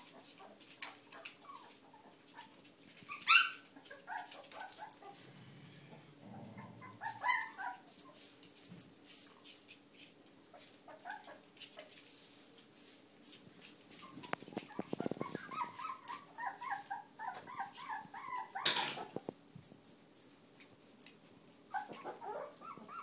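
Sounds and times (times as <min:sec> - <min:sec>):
puppies whimpering: 0:00.1 - 0:05.2, 0:06.5 - 0:07.9, 0:14.0 - 0:19.2, 0:21.7 - 0:23.0.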